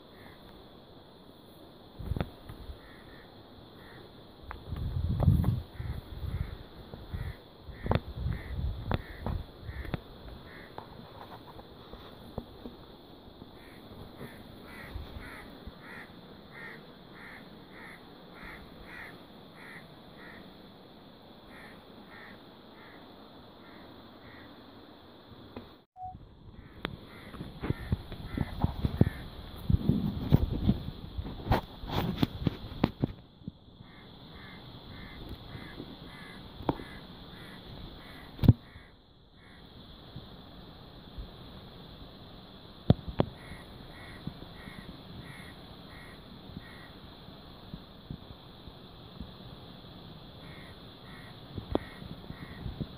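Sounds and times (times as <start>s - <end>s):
crow cawing: 2.8s - 4.1s, 5.8s - 10.8s, 13.6s - 20.4s, 21.5s - 23.0s, 23.6s - 24.5s, 26.6s - 29.2s, 33.8s - 39.6s, 43.4s - 46.9s, 50.4s - 52.6s.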